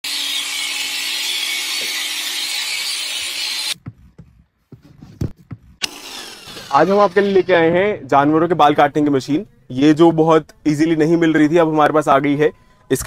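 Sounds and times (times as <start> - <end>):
electric shearing clipper buzzing: 0.0 - 3.8, 5.8 - 7.7.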